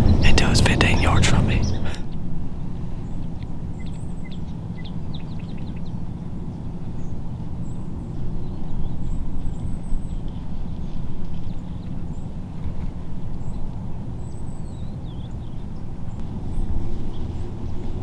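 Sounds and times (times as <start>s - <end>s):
small birds chirping: 0.0s - 2.2s, 2.9s - 18.0s
steady low rumble: 0.0s - 18.0s.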